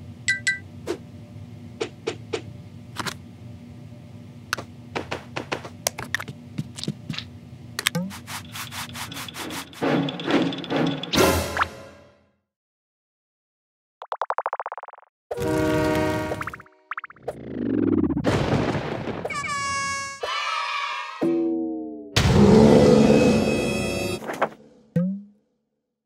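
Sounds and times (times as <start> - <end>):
rubbing and scraping: 8.0 - 10.3.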